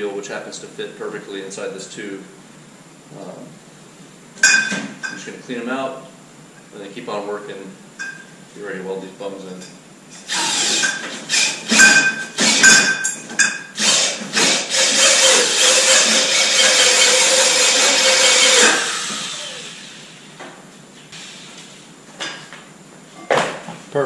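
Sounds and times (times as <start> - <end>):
power drill spinning wire wheel: 10.3 - 12.9, 13.8 - 20.1.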